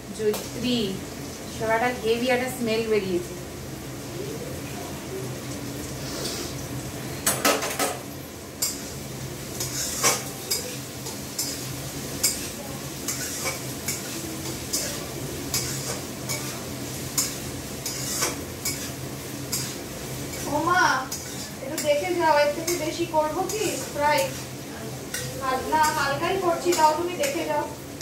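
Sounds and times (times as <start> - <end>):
vegetables frying in oil: 0.0 - 28.0
metal spatula scraping a pan: 9.5 - 27.7.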